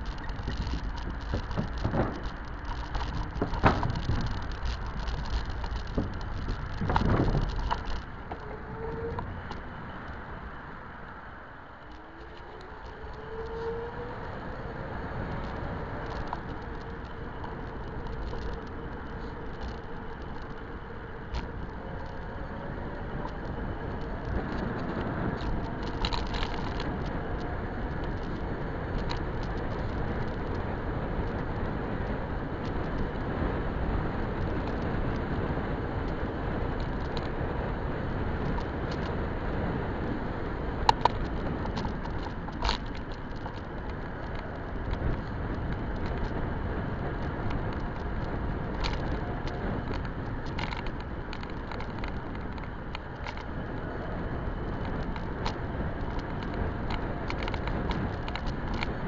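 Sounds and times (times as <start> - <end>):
tyre noise: 0.0 - 10.3, 11.5 - 59.0
bike clicks and rattles: 0.0 - 59.0.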